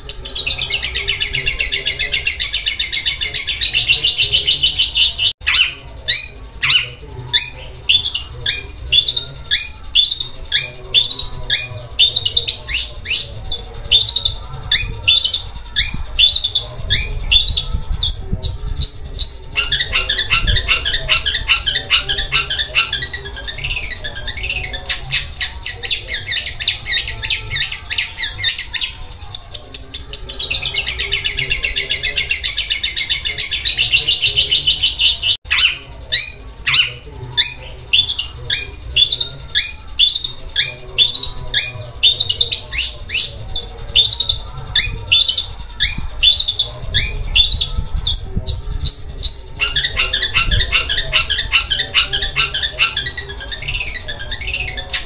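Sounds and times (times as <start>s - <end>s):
shrike singing rattling song: 0.0s - 55.0s.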